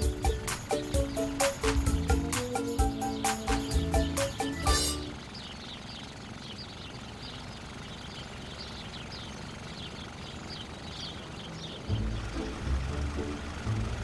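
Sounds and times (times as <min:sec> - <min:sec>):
birds chirping: 0:00.0 - 0:13.9.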